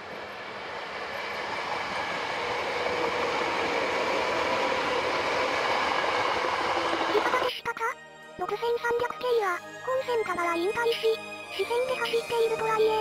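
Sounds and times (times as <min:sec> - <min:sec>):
train wheels rolling on rails: 0:00.0 - 0:07.4.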